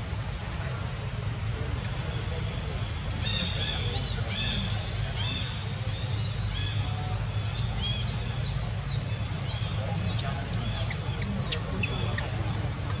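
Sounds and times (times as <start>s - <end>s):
bird chirps: 6.2s - 12.3s.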